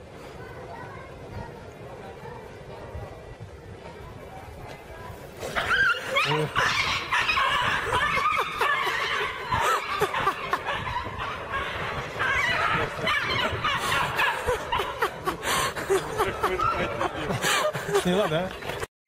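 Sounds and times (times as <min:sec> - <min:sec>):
people laughing and snickering: 0:05.4 - 0:18.9.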